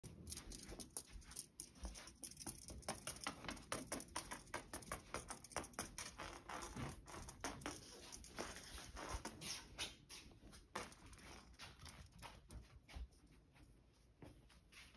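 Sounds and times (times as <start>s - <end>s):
cat toy scratching across rug: 5.9s - 12.6s.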